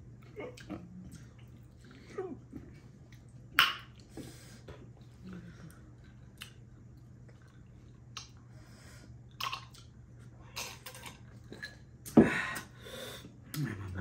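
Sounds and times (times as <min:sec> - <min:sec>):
steady low hum: 0:00.0 - 0:14.0
chewing and mouth smacks: 0:02.6 - 0:04.2, 0:04.8 - 0:08.5, 0:09.3 - 0:10.0.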